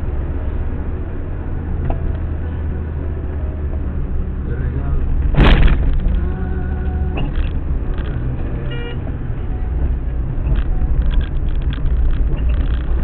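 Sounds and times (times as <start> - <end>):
car engine and road noise: 0.0 - 13.0
vehicle horn: 8.6 - 9.1.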